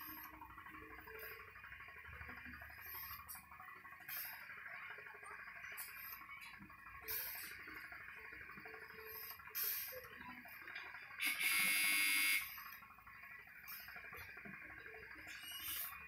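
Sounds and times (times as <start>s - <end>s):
electric buzzer: 11.2s - 12.6s.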